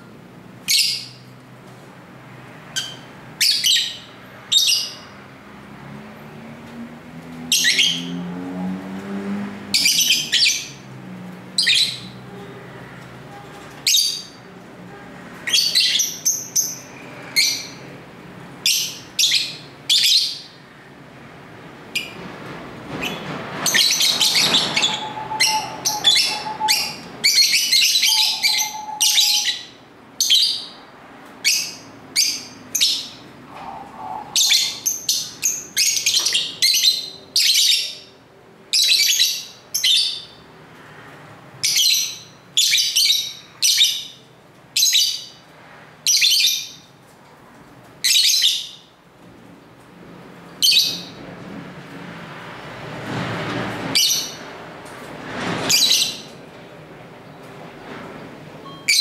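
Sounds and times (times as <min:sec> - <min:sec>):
lovebirds chirping: 0:23.1 - 0:30.8.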